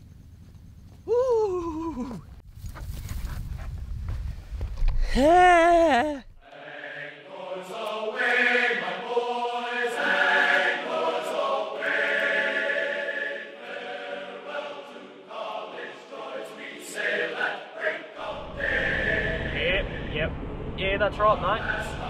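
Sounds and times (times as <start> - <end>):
choir singing in harmony: 6.4 - 20.5, 21.5 - 22.0.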